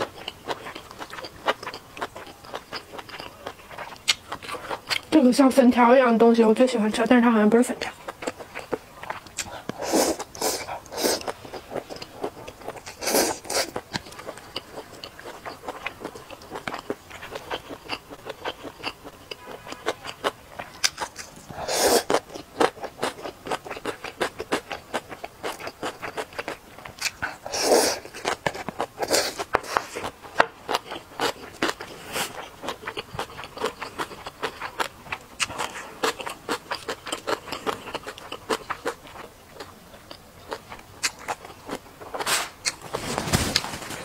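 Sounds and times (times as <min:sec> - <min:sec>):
wet chewing with mouth clicks: 0:00.0 - 0:05.2, 0:07.8 - 0:43.0
slurping noodles: 0:21.5 - 0:22.2, 0:27.5 - 0:28.1.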